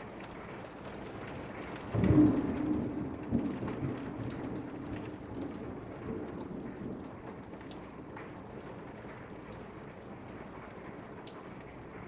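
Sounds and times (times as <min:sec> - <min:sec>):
heavy rain: 0:00.0 - 0:12.0
raindrops ticking: 0:00.0 - 0:12.0
thunder rumbling: 0:01.9 - 0:06.8.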